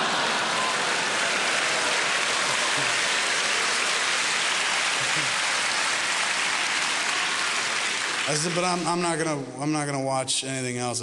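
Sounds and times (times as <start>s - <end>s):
audience laughing: 0.0s - 5.8s
audience clapping: 0.0s - 9.4s.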